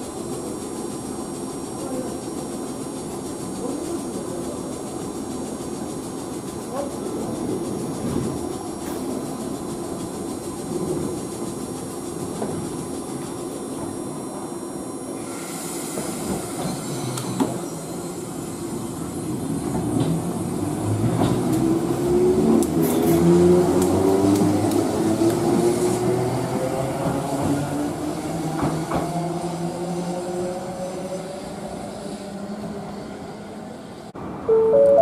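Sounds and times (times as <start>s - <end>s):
air hiss: 15.2s - 19.1s.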